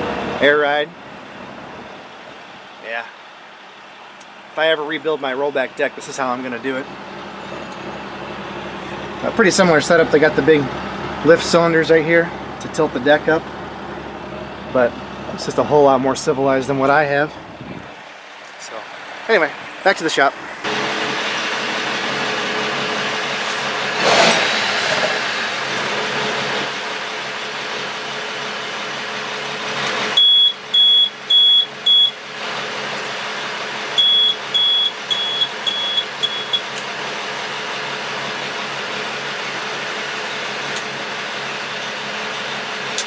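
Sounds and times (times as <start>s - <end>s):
diesel engine idling: 0.0s - 43.0s
high warning buzzer beeps: 30.2s - 32.2s, 34.0s - 36.7s.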